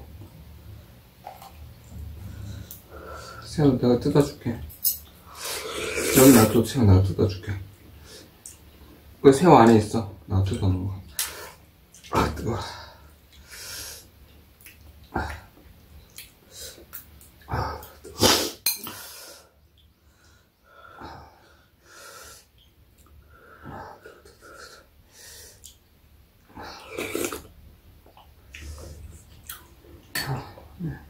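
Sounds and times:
person slurping soup: 5.4s - 6.5s, 26.7s - 27.5s.

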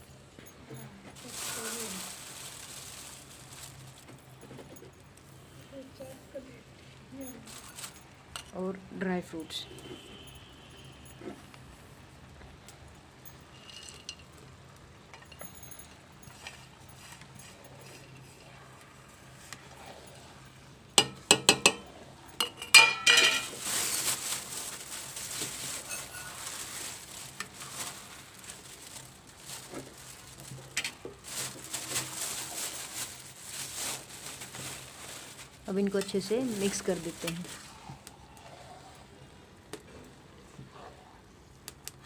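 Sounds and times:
sizzling: 1.1s - 4.4s, 22.4s - 39.7s
stirring and scraping in pan: 16.3s - 32.8s, 35.5s - 41.0s
spatula knocking on pan: 21.0s - 21.8s
metal spatula clanking on pan: 21.0s - 23.5s.

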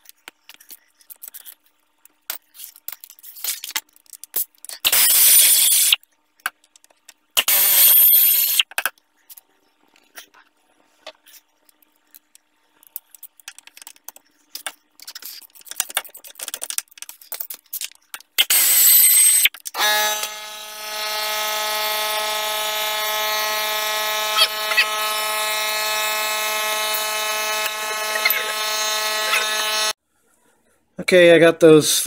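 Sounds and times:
buzzing machine hum: 18.4s - 30.0s.

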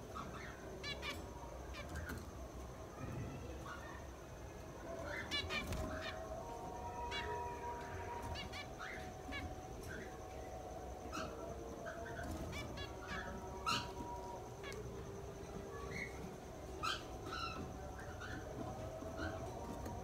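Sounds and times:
finches calling: 0.0s - 2.5s, 11.0s - 19.7s.

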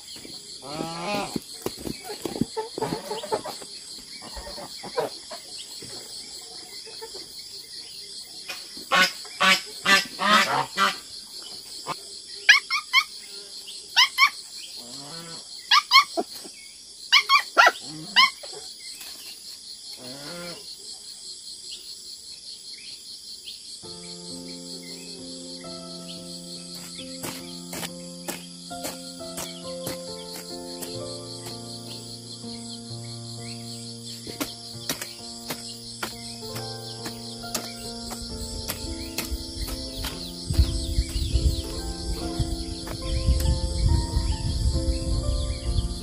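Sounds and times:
insects chirring: 0.0s - 46.0s
music: 23.9s - 46.0s.

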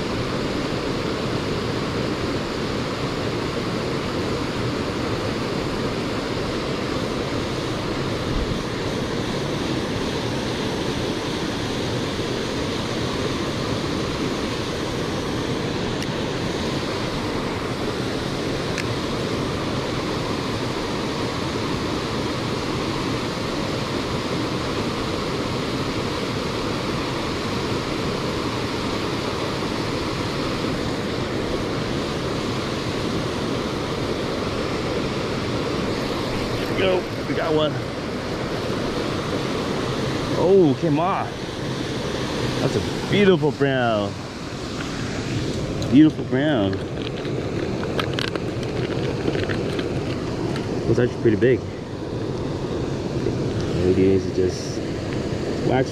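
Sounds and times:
creek water rushing: 0.0s - 55.9s.

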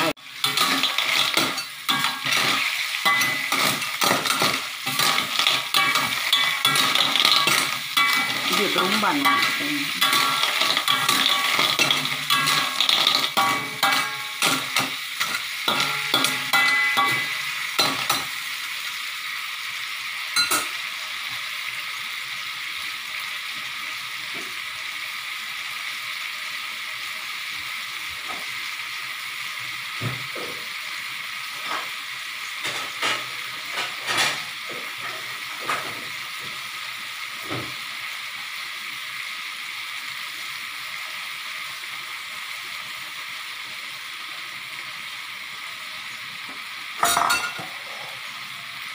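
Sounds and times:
sauce sizzling: 0.0s - 48.9s
spatula scraping a wok: 0.3s - 18.3s, 47.0s - 48.2s.

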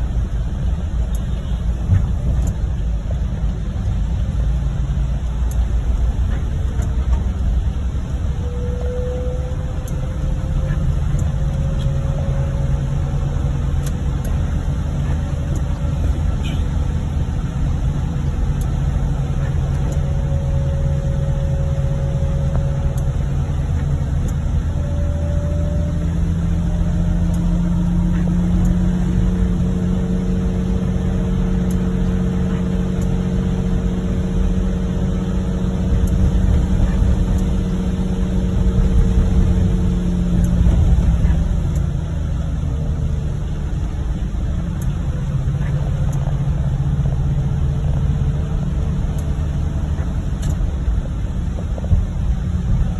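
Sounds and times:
engine and road rumble: 0.0s - 52.9s
tyre noise on wet road: 25.9s - 52.9s.

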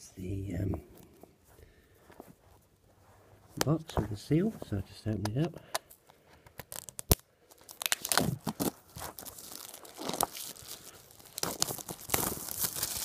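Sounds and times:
plastic snapping: 5.2s - 8.7s
plastic wrap crinkling: 6.0s - 13.0s.

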